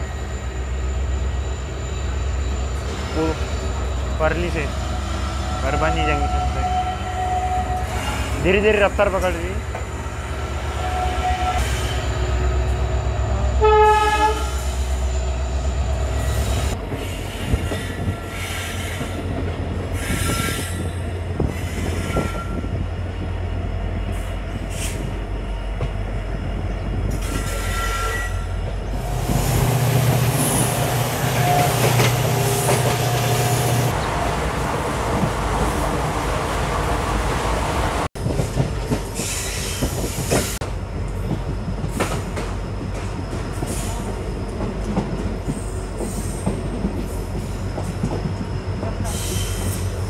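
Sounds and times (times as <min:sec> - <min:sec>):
train running with low rumble: 0:00.0 - 0:50.0
train horn blast: 0:13.5 - 0:14.6, 0:30.6 - 0:33.9
high wheel squeals: 0:27.1 - 0:34.0.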